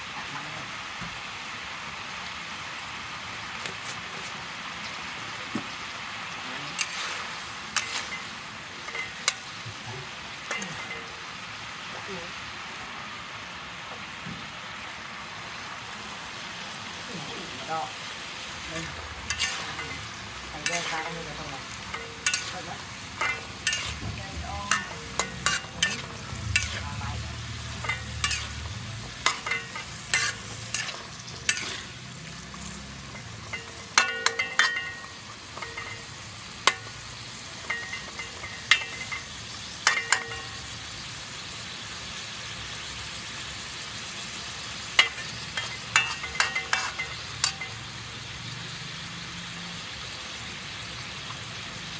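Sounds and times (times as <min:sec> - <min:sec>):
stir-fry sizzling: 0:00.0 - 0:51.9
metal spatula scraping a wok: 0:06.7 - 0:11.3, 0:18.6 - 0:41.1, 0:44.7 - 0:48.2.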